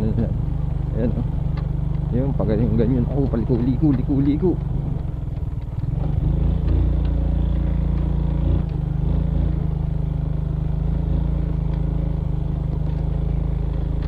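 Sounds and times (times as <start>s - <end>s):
motorcycle engine running under load: 0.0s - 14.0s
bike rattling over stones: 2.7s - 6.9s.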